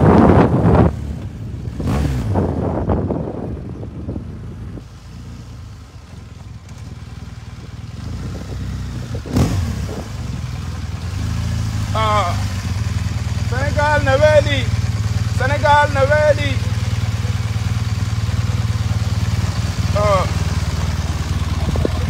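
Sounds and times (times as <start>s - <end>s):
wind buffeting microphone: 0.0s - 4.9s, 7.6s - 10.7s, 21.1s - 22.0s
motorcycle engine running: 0.0s - 22.0s.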